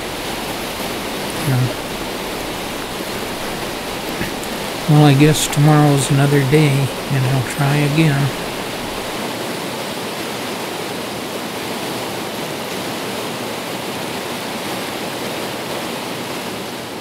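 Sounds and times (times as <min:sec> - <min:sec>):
fast river rushing: 0:00.0 - 0:17.0.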